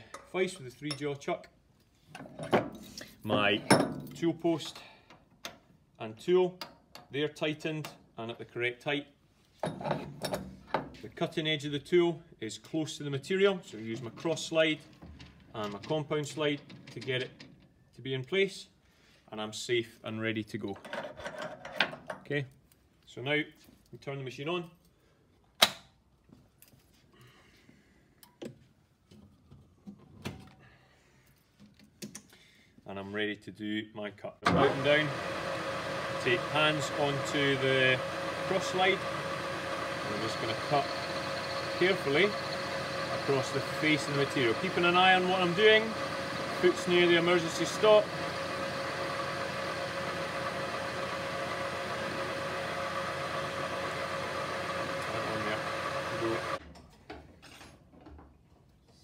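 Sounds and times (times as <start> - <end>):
lathe running with whine: 34.5 - 56.6.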